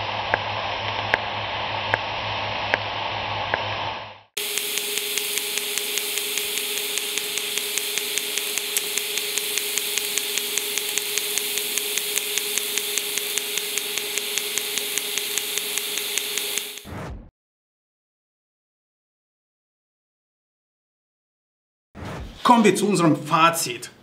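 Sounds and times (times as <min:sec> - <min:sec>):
welding arc hissing: 0:00.0 - 0:16.9
fast even ticking: 0:04.4 - 0:16.8.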